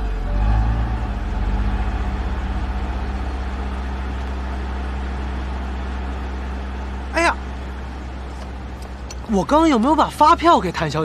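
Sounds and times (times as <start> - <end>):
car engine running at low revs: 0.0 - 11.0.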